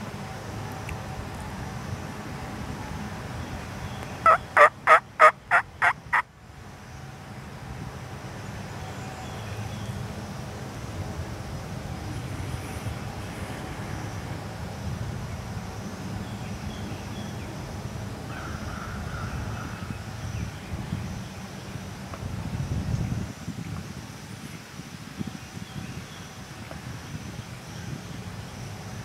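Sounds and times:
low background noise: 0.0s - 29.0s
turkey gobbling: 4.2s - 6.2s.

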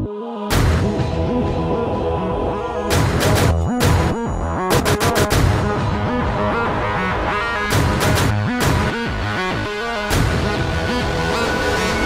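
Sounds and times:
cinematic music: 0.0s - 12.0s
sharp music hits: 2.9s - 5.9s.

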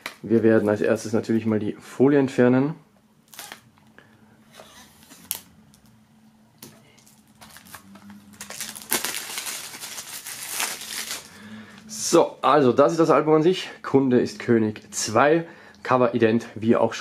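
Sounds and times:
cellophane crinkling: 6.6s - 11.4s.

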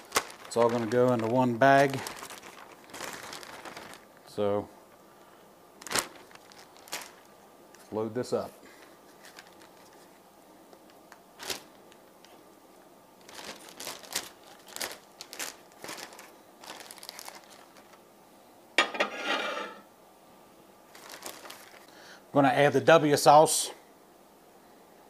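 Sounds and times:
plastic bag crinkling: 0.0s - 4.7s, 5.8s - 10.2s, 10.8s - 12.4s, 13.2s - 18.0s, 20.9s - 21.9s.

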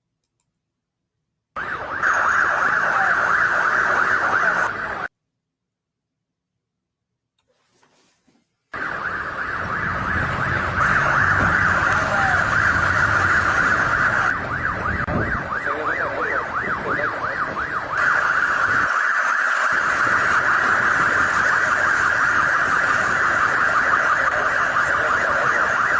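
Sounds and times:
electronic siren wailing: 1.6s - 5.1s, 8.7s - 25.9s.

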